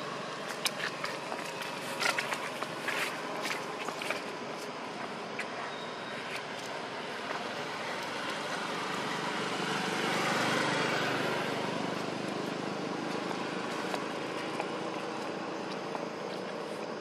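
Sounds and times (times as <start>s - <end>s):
road vehicle passing: 5.5s - 17.0s.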